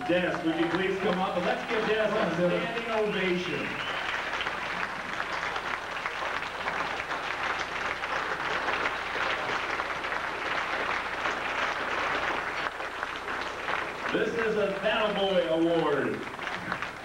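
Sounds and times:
crowd applauding: 0:00.0 - 0:17.0.

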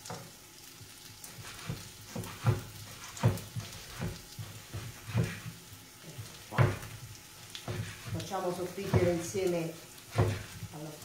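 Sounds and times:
knife chopping on wooden board: 0:01.4 - 0:05.6, 0:06.2 - 0:10.7.

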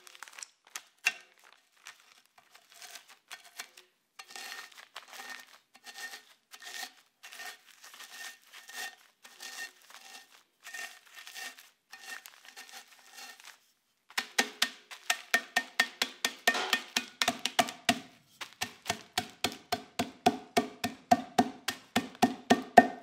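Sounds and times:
biscuits crunching: 0:00.0 - 0:03.8, 0:04.6 - 0:13.6, 0:18.4 - 0:19.6
plastic bag crinkling: 0:00.0 - 0:03.8, 0:04.7 - 0:05.7, 0:07.6 - 0:13.7, 0:18.2 - 0:19.8
rolling pin pounding: 0:15.4 - 0:23.0.

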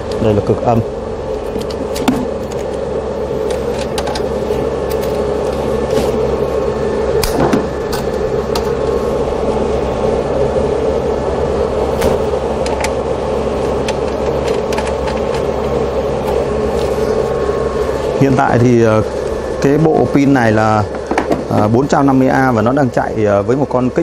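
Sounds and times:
electrical equipment humming: 0:00.0 - 0:24.0
battery cables clicking: 0:13.8 - 0:15.8.

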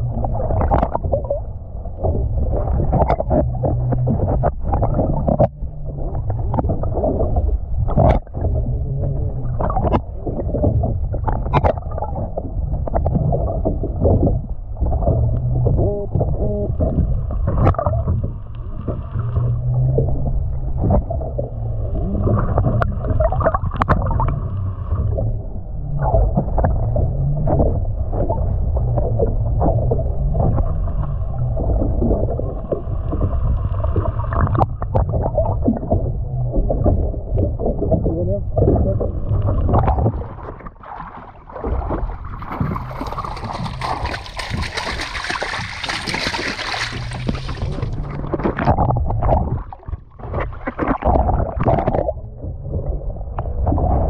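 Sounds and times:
underwater rumble and sloshing: 0:00.0 - 0:54.0.

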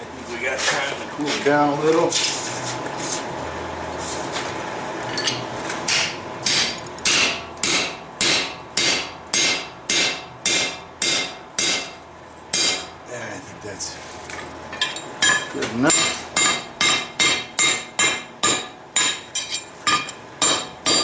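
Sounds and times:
hammer striking steel on anvil: 0:05.1 - 0:13.0, 0:14.8 - 0:21.0.

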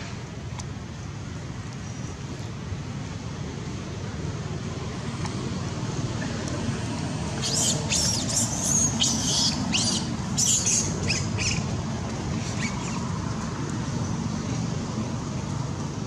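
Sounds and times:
monkey squealing: 0:07.4 - 0:11.7.

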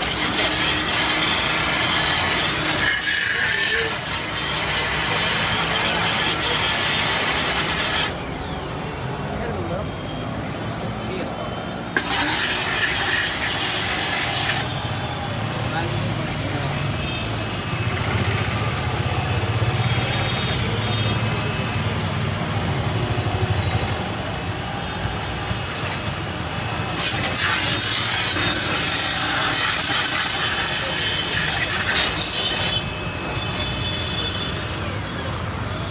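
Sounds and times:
water jet spraying: 0:00.0 - 0:08.2, 0:12.0 - 0:14.7, 0:26.8 - 0:34.4
pressure washer motor hum: 0:00.0 - 0:08.5, 0:11.9 - 0:34.8.

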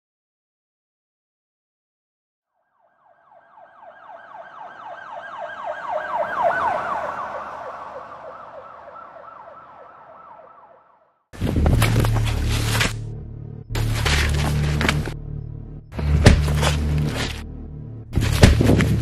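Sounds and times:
siren in fast yelp: 0:02.6 - 0:11.2.

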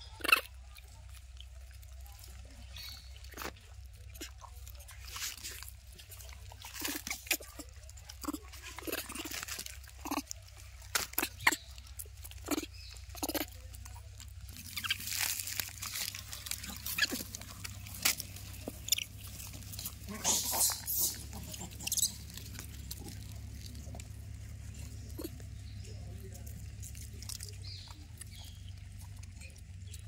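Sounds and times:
food crunching: 0:00.0 - 0:30.0
rustling: 0:00.1 - 0:30.0
monkey short low calls: 0:20.1 - 0:22.2.

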